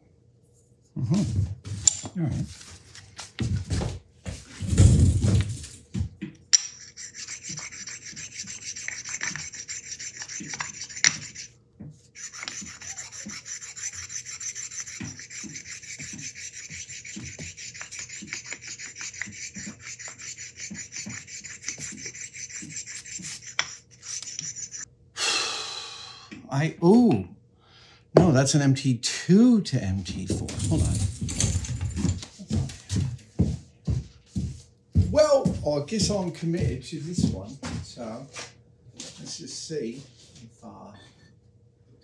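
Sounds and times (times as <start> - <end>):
stone rasping on steel: 6.6 - 11.5, 12.2 - 24.9.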